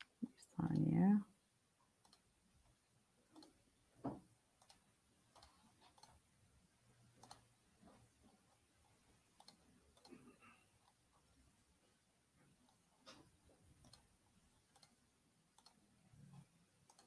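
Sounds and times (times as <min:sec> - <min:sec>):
computer clicks: 0:02.0 - 0:02.3, 0:03.3 - 0:03.6, 0:04.6 - 0:06.2, 0:07.2 - 0:07.5, 0:09.4 - 0:11.0, 0:13.8 - 0:17.0
thump: 0:04.0 - 0:04.2.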